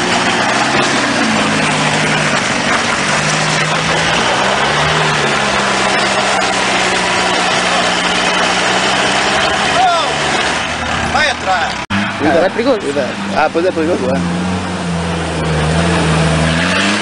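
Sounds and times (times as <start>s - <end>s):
off-road vehicle engine crawling: 0.0s - 17.0s.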